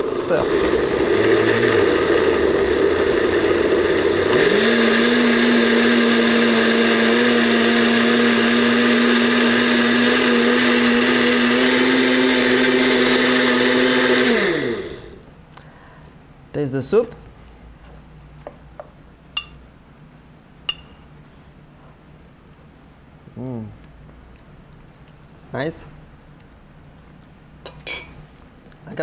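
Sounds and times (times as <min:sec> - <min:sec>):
blender motor running: 0:00.0 - 0:15.2.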